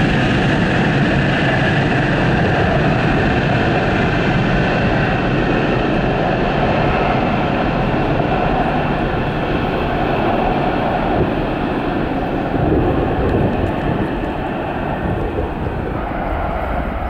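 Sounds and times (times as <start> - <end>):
jet engine rumble: 0.0 - 17.0.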